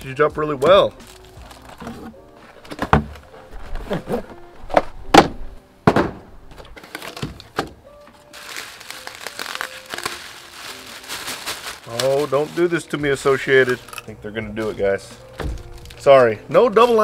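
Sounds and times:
bubble wrap crinkling: 0.0 - 4.9, 8.2 - 17.0
background music: 0.0 - 17.0
cardboard thunking and scraping: 1.4 - 7.8.

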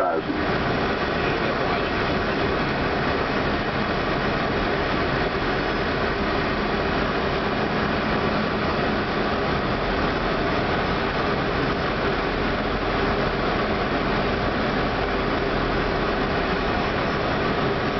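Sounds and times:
low hum: 0.0 - 3.9.

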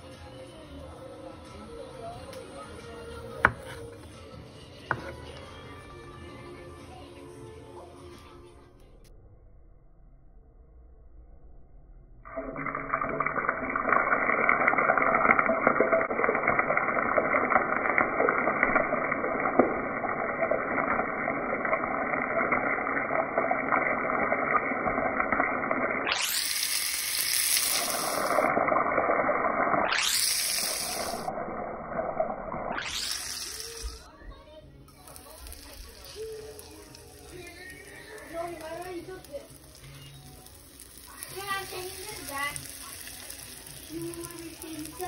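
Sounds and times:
sausage sizzling in oil: 12.4 - 31.3, 32.6 - 34.1, 35.0 - 45.0.

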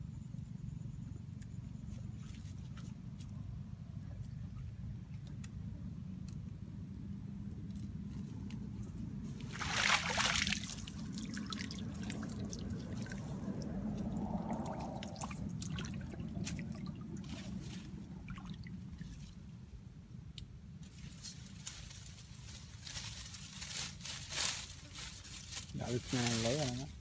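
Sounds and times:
feet wading in shallow water: 9.4 - 19.6.

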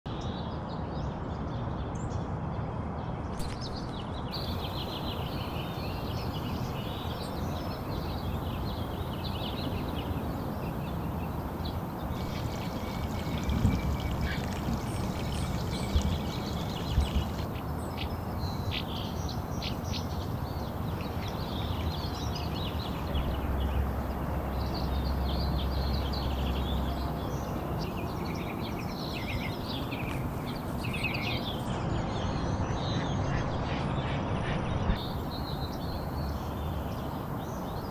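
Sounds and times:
small airplane droning overhead: 0.4 - 37.9
small birds chirping: 3.2 - 33.3, 34.9 - 37.9
steady rushing background: 11.3 - 17.8
ducks quacking: 12.1 - 17.5.

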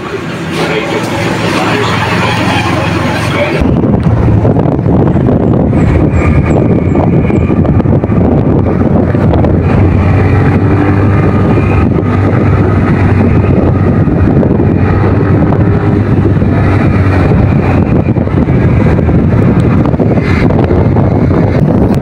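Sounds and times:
motorcycle engine running: 0.0 - 22.0
wind rushing over microphone: 0.0 - 22.0.

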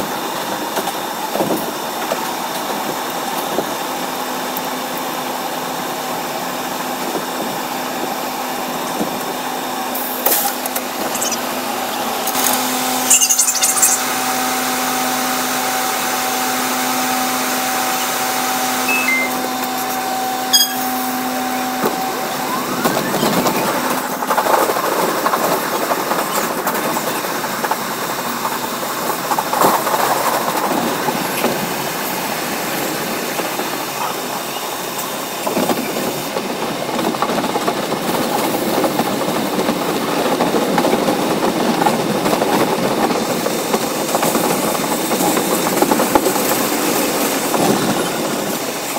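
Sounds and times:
subway train running: 0.0 - 48.9
rough rail noise: 15.8 - 27.2.

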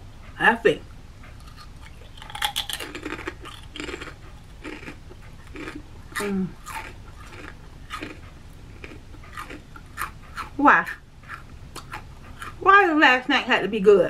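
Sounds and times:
crunching potato chip: 1.4 - 8.2, 8.8 - 10.6.

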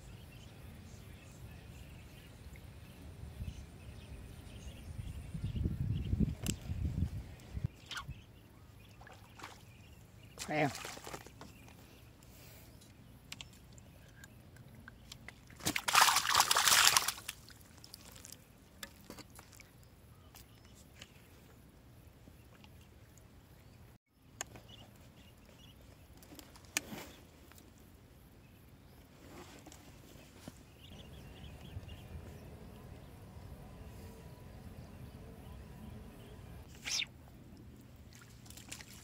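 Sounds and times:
water sloshing and splashing: 8.9 - 11.6, 15.1 - 19.8, 37.6 - 39.0.

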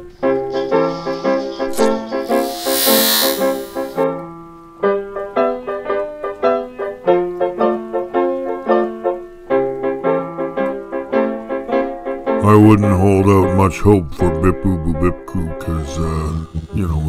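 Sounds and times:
loud hiss sweep: 0.6 - 4.0
rhythmic keyboard music: 15.2 - 17.0.

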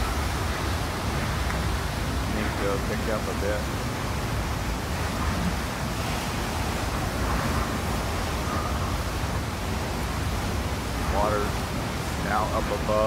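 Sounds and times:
wind and driving rain: 0.0 - 13.0.

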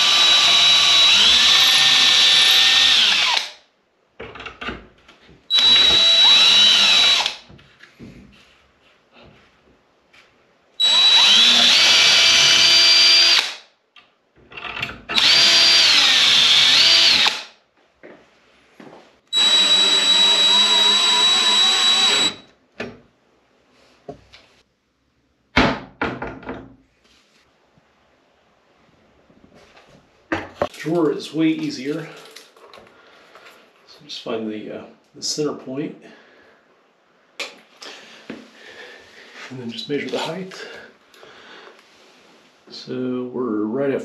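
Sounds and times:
cordless drill boring into wood: 0.0 - 3.6, 5.5 - 7.4, 10.8 - 13.6, 15.1 - 17.5, 19.4 - 22.5.

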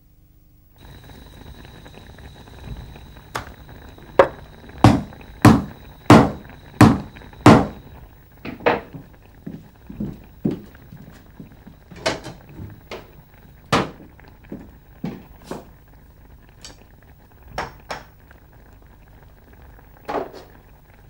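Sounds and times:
faint high hum: 0.0 - 21.0
sharp knocks: 4.2 - 7.8.

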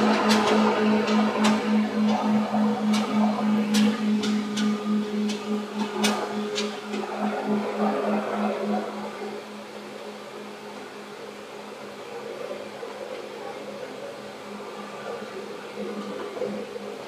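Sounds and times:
low pulsing hum: 0.0 - 11.0
train interior hum and rumble: 0.0 - 17.0.

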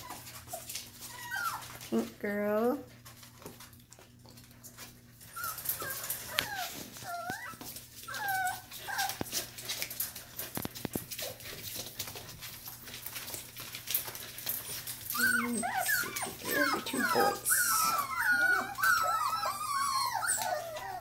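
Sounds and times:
puppies whimpering: 0.0 - 2.0, 4.8 - 10.5, 13.1 - 21.0.

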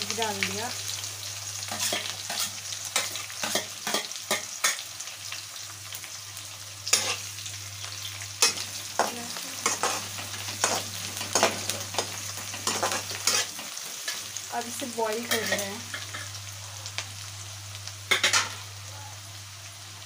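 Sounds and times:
vegetables sizzling in oil: 0.0 - 20.0
metal spatula scraping pan: 8.4 - 14.2, 15.2 - 16.3.

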